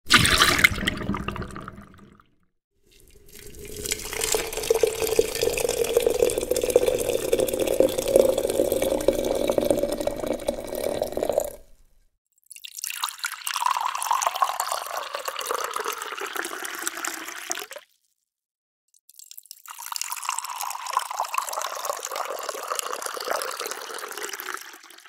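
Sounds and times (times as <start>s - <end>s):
tea pouring into a cup: 2.9s - 11.8s, 12.6s - 17.8s, 19.6s - 25.0s.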